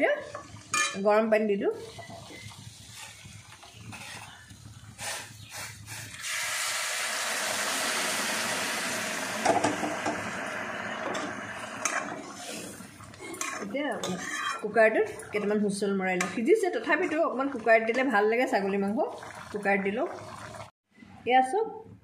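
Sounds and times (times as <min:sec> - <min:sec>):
loud sizzling hiss in a pan: 0:05.0 - 0:12.8.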